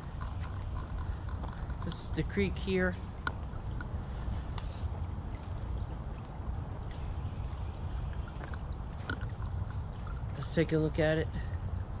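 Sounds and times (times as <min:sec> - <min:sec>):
even hiss: 0:03.9 - 0:05.9.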